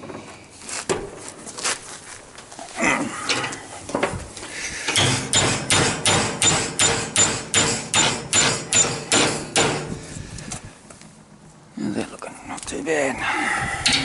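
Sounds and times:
hammer striking steel rod: 5.0 - 9.9.

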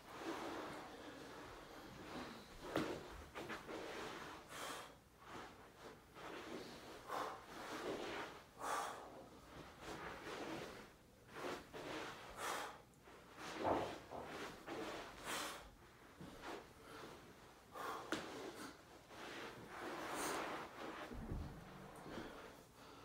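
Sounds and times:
man breathing hard: 8.6 - 9.4, 16.8 - 18.8, 21.2 - 23.0
body thump on rug: 21.0 - 22.4.

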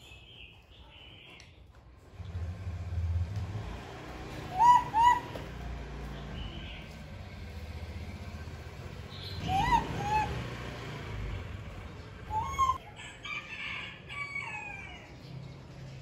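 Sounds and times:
baby monkey cooing: 4.5 - 5.3, 9.4 - 10.4, 12.3 - 12.8.

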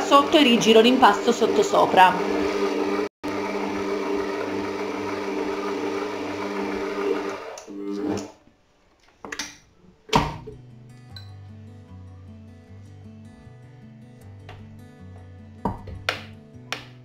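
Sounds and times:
stand mixer motor running: 0.0 - 8.3.

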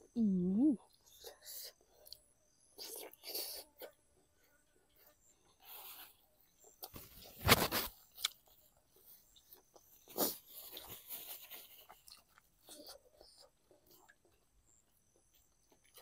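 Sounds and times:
person chewing crunchy food: 5.6 - 16.0.

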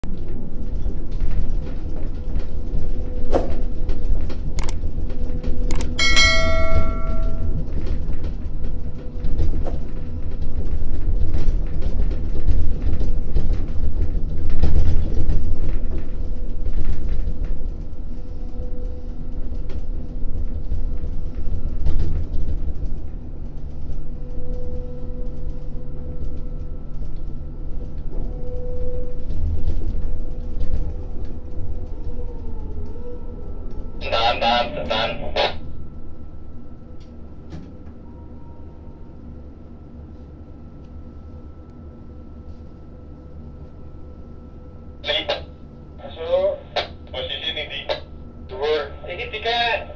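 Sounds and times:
ringing metallic clang: 6.0 - 7.6.

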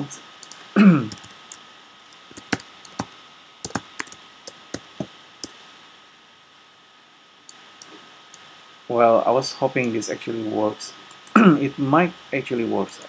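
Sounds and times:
keyboard typing: 0.4 - 5.6.

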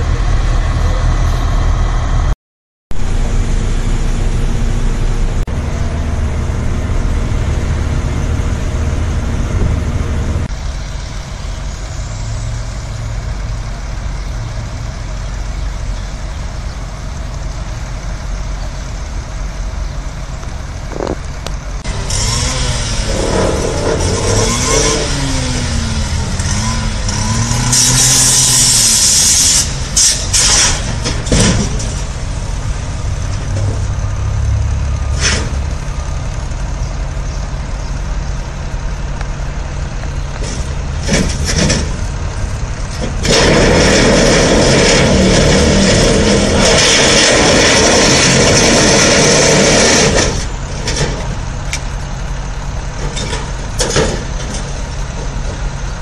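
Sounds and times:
diesel engines running: 0.0 - 56.0
loud hiss: 27.6 - 31.0.

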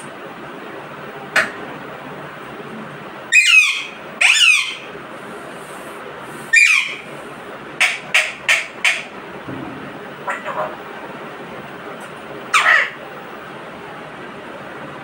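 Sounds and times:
parakeet calling: 3.3 - 4.9, 6.5 - 7.1, 10.2 - 10.7, 12.5 - 13.0.

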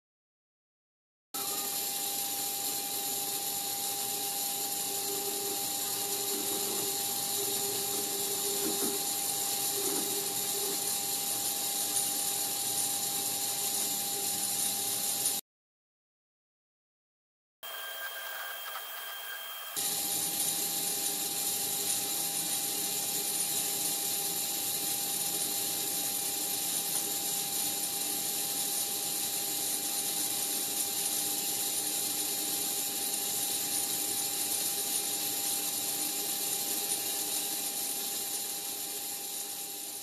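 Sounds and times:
machine whirring with steady hum: 1.4 - 15.4, 17.6 - 40.0.

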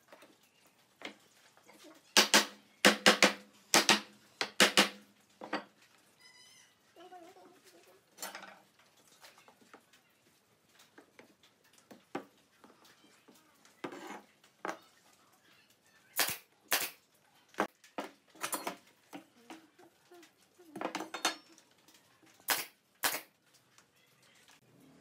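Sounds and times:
nail gun shots: 2.2 - 5.0, 16.2 - 17.0, 22.5 - 23.3.

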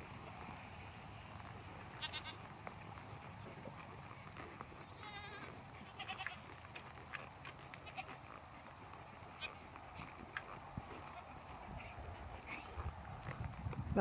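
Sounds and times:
sheep bleating: 1.9 - 2.5, 4.9 - 6.6, 7.8 - 8.2.

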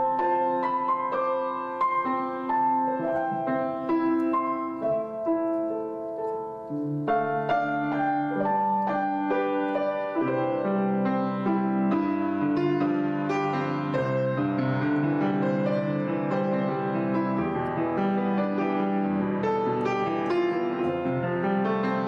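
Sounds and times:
gentle piano music: 0.0 - 22.0.

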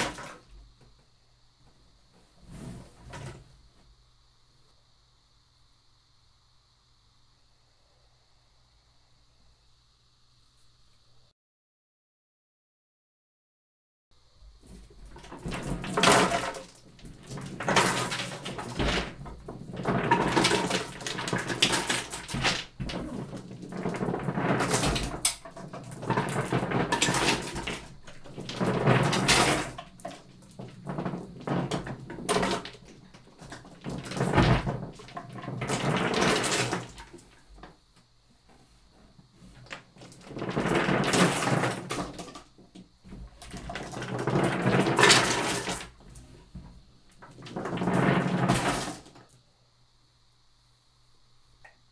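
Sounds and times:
marbles rolling across paper: 15.1 - 37.3, 39.7 - 42.5, 43.4 - 46.3, 47.2 - 49.2.

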